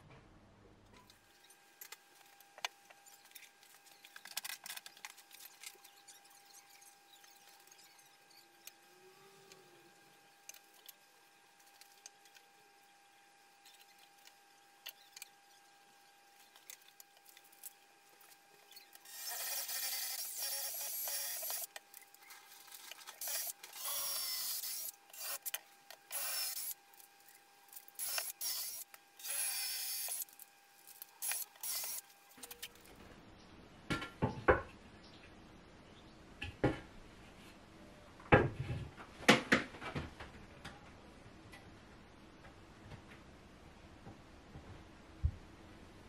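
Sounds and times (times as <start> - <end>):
cordless drill boring into wood: 19.0 - 21.7, 23.2 - 26.8, 28.0 - 30.3, 31.2 - 32.0.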